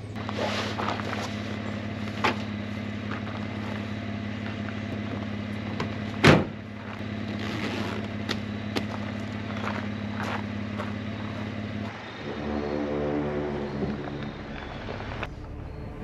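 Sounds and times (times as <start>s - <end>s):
engine idling hum: 0.0s - 16.0s
tailgate slammed shut: 5.8s - 6.6s.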